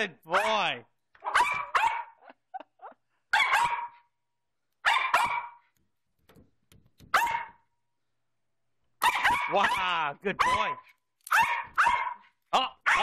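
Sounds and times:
small dog barking: 1.2 - 2.3, 3.3 - 4.1, 4.8 - 5.6, 7.1 - 7.6, 9.0 - 13.0.

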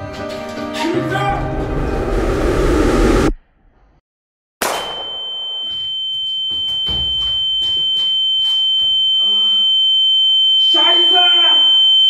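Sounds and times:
high-pitched sine tone: 4.8 - 12.0.

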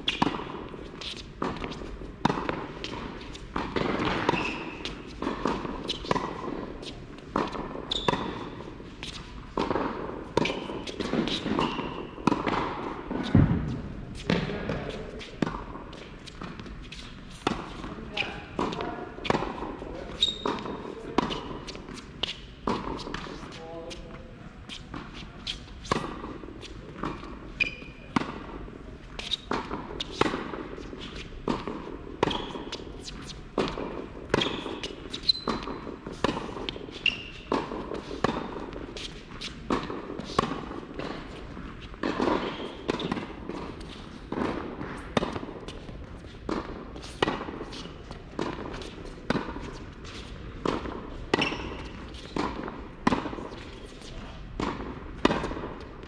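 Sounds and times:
tennis balls struck and bouncing: 0.0 - 56.0
shoe squeaks on court: 4.0 - 5.1, 7.9 - 9.2, 19.9 - 23.3, 27.2 - 28.2, 32.2 - 33.4, 34.3 - 38.1, 51.3 - 52.4.

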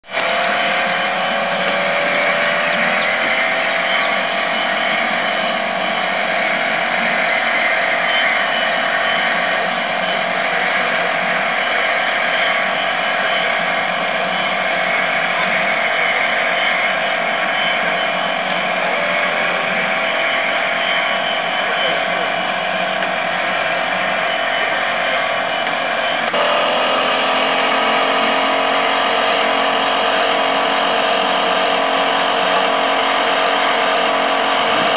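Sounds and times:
rc car electric motor whining: 0.1 - 34.9.

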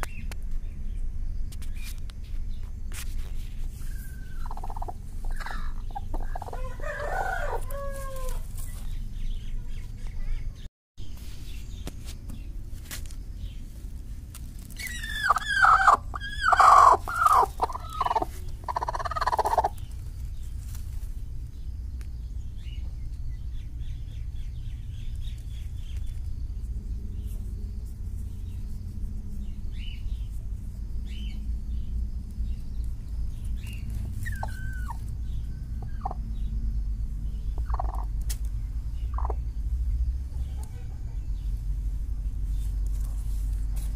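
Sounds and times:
steady low rumble: 0.0 - 43.9
hen calling: 3.8 - 8.5, 14.7 - 20.0, 33.7 - 36.2, 37.5 - 38.1, 39.1 - 39.4.

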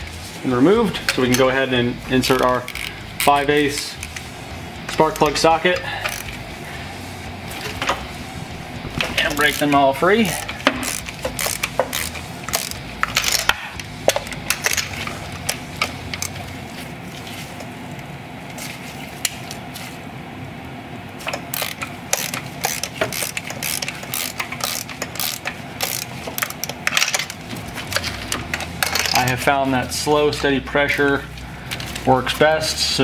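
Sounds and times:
hand ratchet clicking: 2.4 - 4.2, 4.9 - 6.4, 9.0 - 16.4, 21.3 - 29.4.

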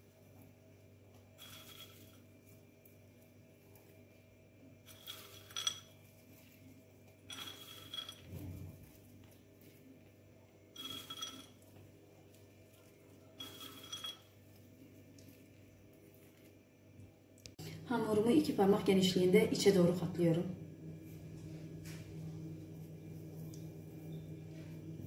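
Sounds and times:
nuts rattling in ceramic bowl: 1.4 - 2.2, 4.9 - 6.0, 7.3 - 8.4, 10.8 - 11.6, 13.4 - 14.4
bowl ringing: 7.3 - 8.3, 10.8 - 11.6, 13.3 - 14.4.

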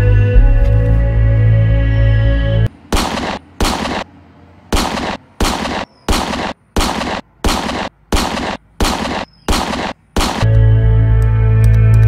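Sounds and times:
toy pistol gunshots: 2.9 - 4.1, 4.7 - 10.5.

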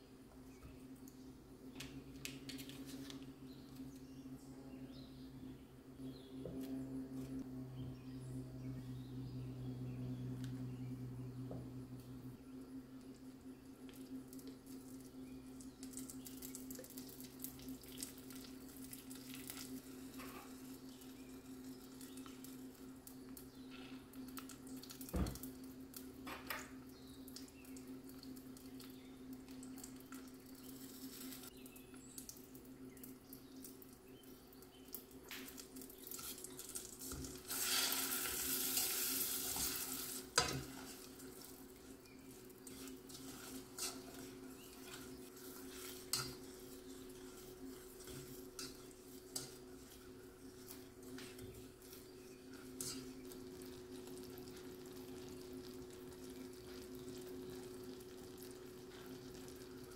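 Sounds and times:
steady low hum: 0.0 - 37.5, 38.3 - 59.9
butter sizzling in saucepan: 35.4 - 59.9
wooden spoon stirring: 39.5 - 53.3.

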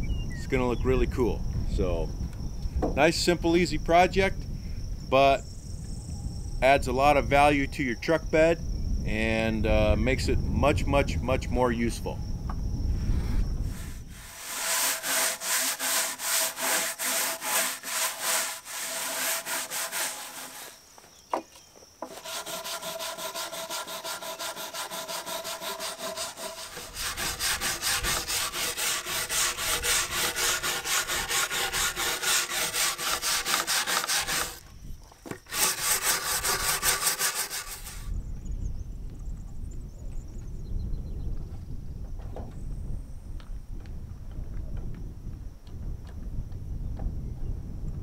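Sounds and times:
stiff brush scrubbing rough wood: 13.6 - 20.8, 22.0 - 34.6, 35.4 - 38.1.

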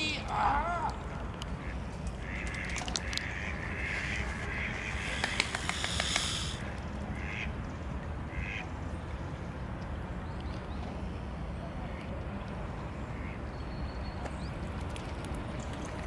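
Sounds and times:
ducks quacking: 1.6 - 6.5, 7.2 - 7.5, 8.3 - 8.6
brief hiss: 5.0 - 6.6
sharp clicks: 5.1 - 6.6.

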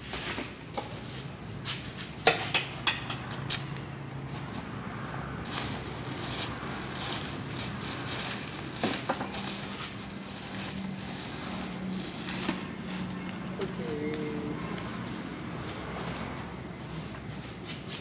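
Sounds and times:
plastic bags and paper rustling: 4.3 - 18.0.

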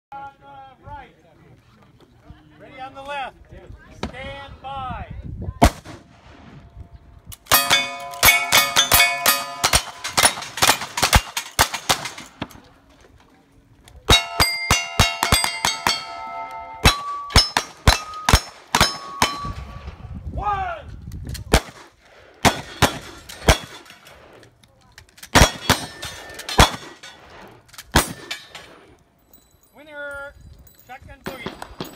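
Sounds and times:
steel targets ringing: 7.5 - 12.3, 14.1 - 19.8.

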